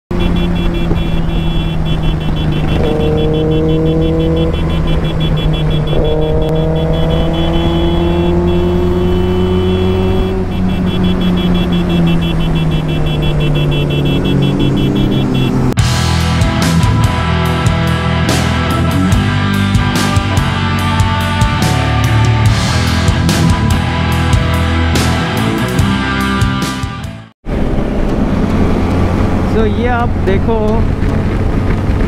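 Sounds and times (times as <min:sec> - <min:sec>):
motorcycle engine cruising: 0:00.1 - 0:32.0
music: 0:15.8 - 0:27.4
wind noise: 0:27.5 - 0:32.0.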